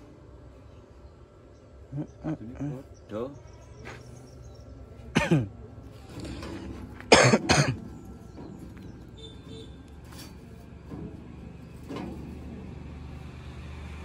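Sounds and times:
man clearing throat: 0:05.1 - 0:05.5, 0:07.1 - 0:07.8
man coughing loudly: 0:05.1 - 0:05.5, 0:07.1 - 0:07.8.

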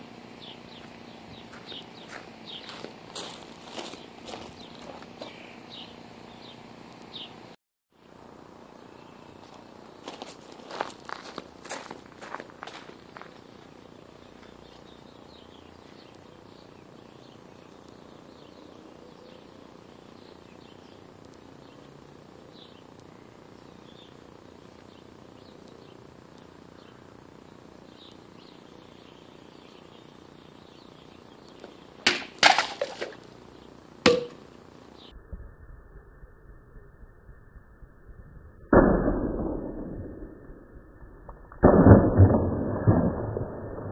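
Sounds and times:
sword cutting plastic bottles: 0:32.1 - 0:33.2
sharp knock with ring: 0:34.0 - 0:34.4.

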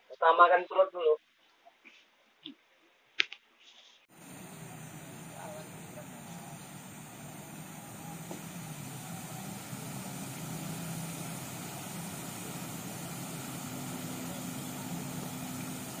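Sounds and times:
motor droning: 0:04.1 - 0:16.0.

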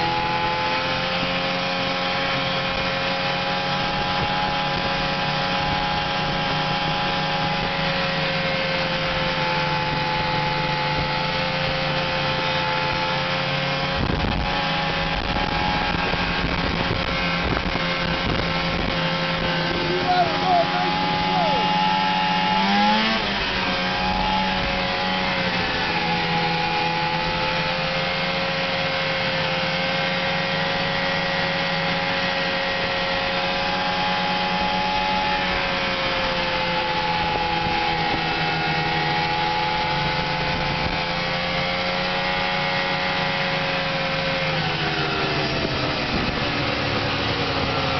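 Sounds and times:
snowmobile engine running: 0:00.0 - 0:47.9
rushing wind noise: 0:13.8 - 0:26.8, 0:44.7 - 0:47.9.

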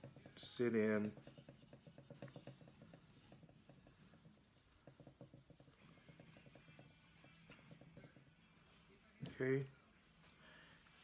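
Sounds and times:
wipe scrubbing metal: 0:00.0 - 0:08.4.

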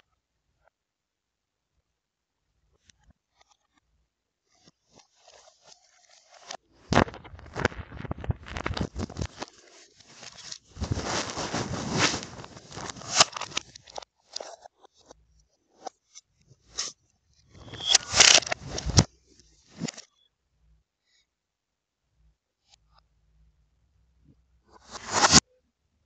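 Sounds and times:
scraping rustles: 0:07.2 - 0:14.6, 0:17.5 - 0:20.0.

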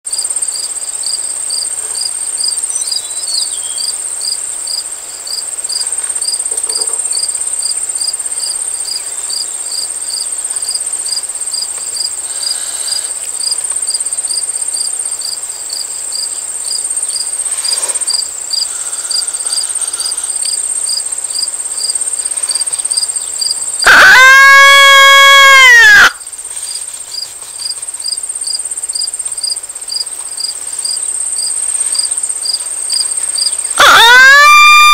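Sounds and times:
crickets trilling: 0:00.1 - 0:34.9
coyote call howl: 0:23.8 - 0:26.2, 0:33.8 - 0:34.9.

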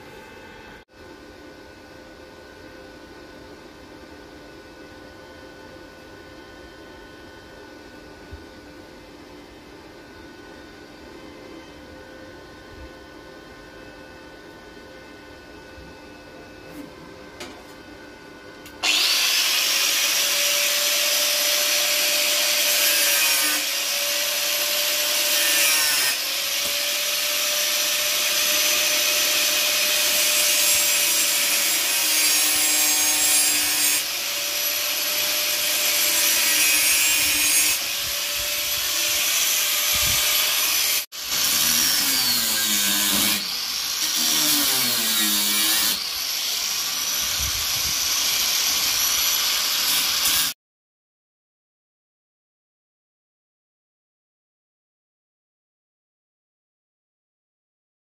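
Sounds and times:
angle grinder cutting steel: 0:18.8 - 0:50.6.

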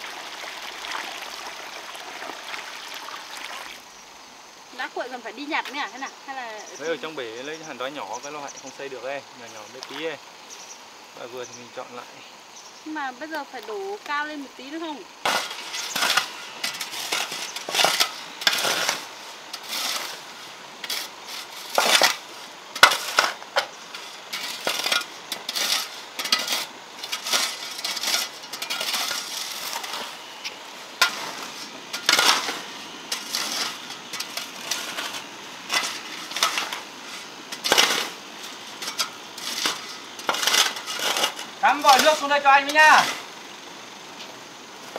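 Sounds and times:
metal shovel scraping gravel: 0:15.2 - 0:43.4, 0:44.2 - 0:44.9.

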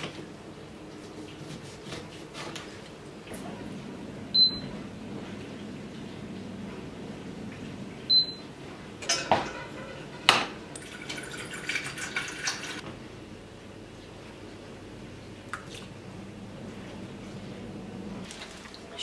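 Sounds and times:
hob touch control beep: 0:08.1 - 0:08.4
saucepan clanking on hob: 0:09.0 - 0:11.4.

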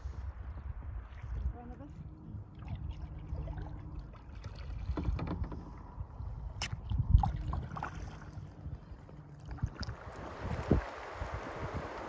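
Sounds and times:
paddle splashing in water: 0:02.5 - 0:06.0, 0:06.6 - 0:12.0.

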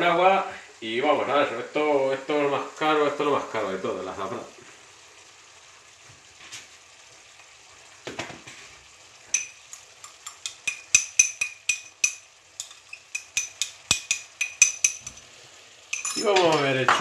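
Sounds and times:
vegetables sizzling in pot: 0:00.0 - 0:17.0
spoon clinking against glass: 0:09.3 - 0:15.2, 0:15.9 - 0:16.7.

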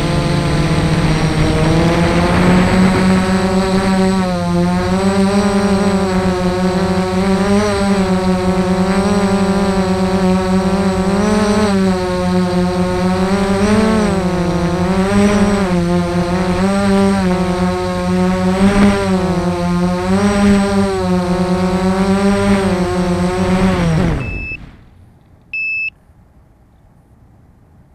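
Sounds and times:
quadcopter motors whining: 0:00.0 - 0:24.6
short electronic beep: 0:24.2 - 0:24.6, 0:25.5 - 0:26.0.

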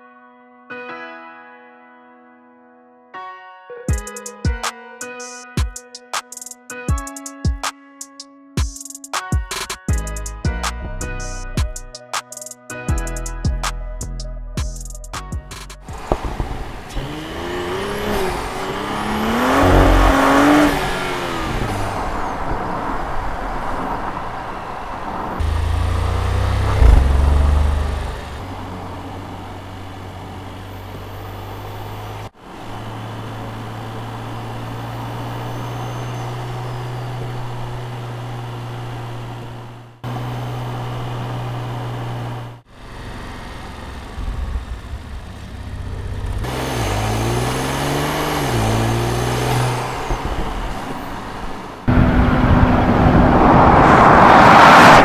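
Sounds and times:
engine drone at cruise: 0:15.8 - 0:22.4, 0:25.4 - 0:55.0
car engine revving: 0:15.8 - 0:55.0.

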